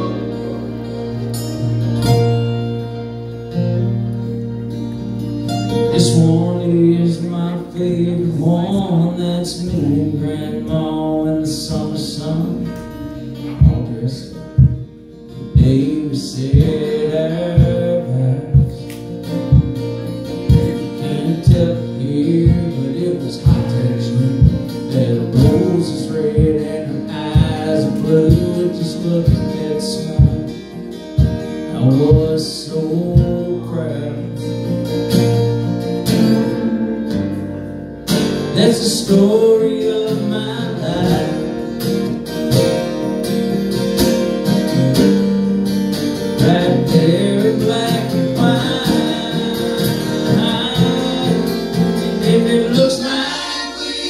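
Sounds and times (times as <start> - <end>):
strummed acoustic guitars: 0.0 - 54.0
man singing: 5.8 - 34.6, 38.4 - 42.2, 46.3 - 54.0.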